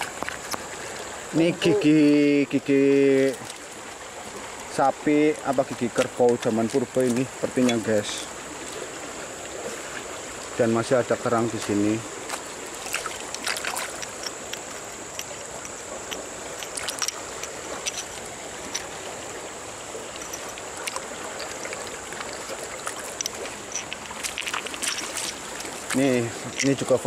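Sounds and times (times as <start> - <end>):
stream rushing: 0.0 - 27.0
shells and stones clicking: 12.9 - 19.1, 20.0 - 27.0.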